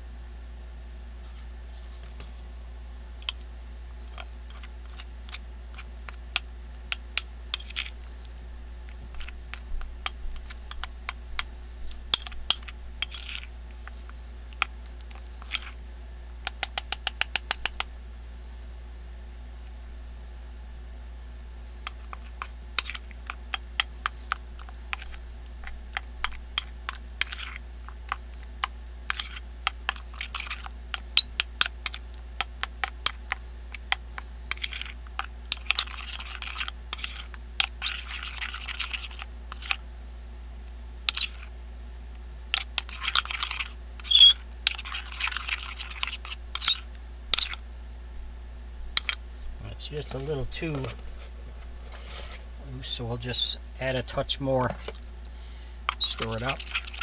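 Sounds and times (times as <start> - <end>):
wet scraping of paste: 8.9 - 13.5, 14.5 - 15.8, 21.8 - 39.8, 41.1 - 41.5, 42.6 - 47.6, 55.9 - 57.0.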